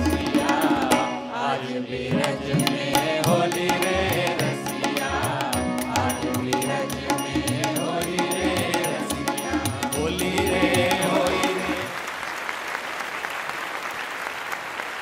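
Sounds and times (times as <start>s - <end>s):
tabla drumming: 0.0s - 1.4s, 2.1s - 12.0s
choir singing devotional song: 0.0s - 12.0s
applause: 11.6s - 15.0s.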